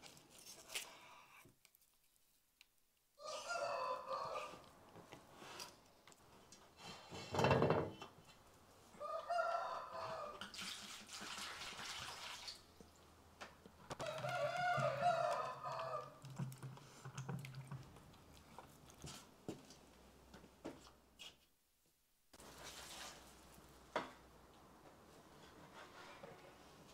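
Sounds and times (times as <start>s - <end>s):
rooster crowing: 3.2s - 4.7s, 9.0s - 10.4s, 14.0s - 16.2s.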